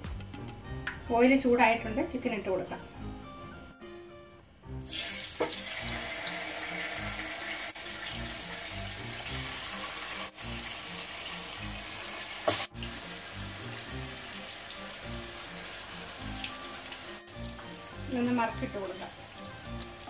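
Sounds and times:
chicken sizzling in hot oil: 4.8 - 20.0.

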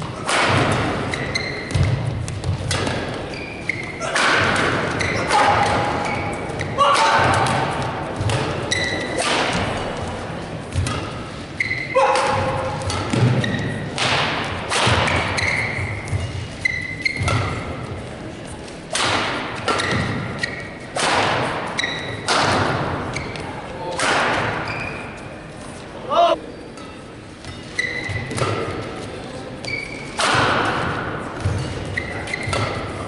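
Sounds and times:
rackets hitting shuttlecock: 0.0 - 17.9, 18.9 - 24.8, 26.8 - 29.0, 29.6 - 33.0
shoes squeaking on court: 0.8 - 4.1, 4.8 - 6.8, 8.1 - 9.2, 9.8 - 12.0, 12.6 - 13.9, 15.1 - 18.9, 19.7 - 20.9, 21.7 - 22.3, 23.1 - 23.6, 24.6 - 30.2, 31.4 - 33.0.

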